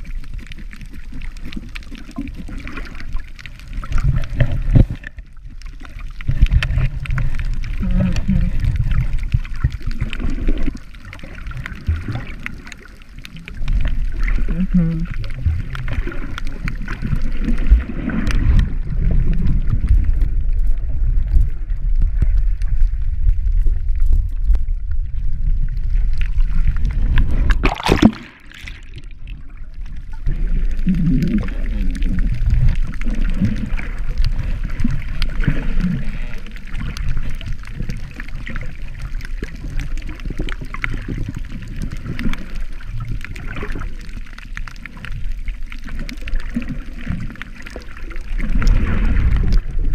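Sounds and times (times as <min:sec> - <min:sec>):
muffled underwater water sloshing: 0:00.0 - 0:49.9
short loud crackle: 0:27.1 - 0:29.3.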